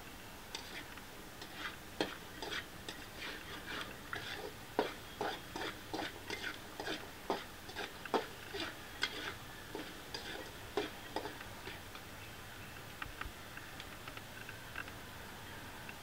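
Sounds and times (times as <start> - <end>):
spatula scraping metal pan: 0.5 - 11.8.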